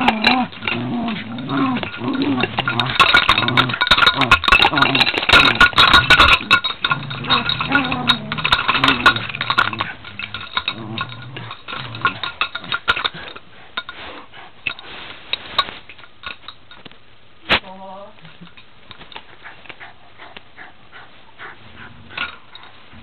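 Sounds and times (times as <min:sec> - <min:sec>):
dog growling: 0:00.0 - 0:13.4, 0:19.4 - 0:22.6
sharp clicks and clinks: 0:00.0 - 0:14.0.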